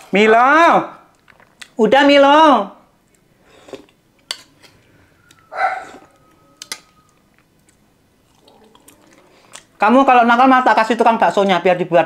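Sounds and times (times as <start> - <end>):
cutlery clicking on a plate: 4.2 - 4.8
dog barking: 5.5 - 6.0.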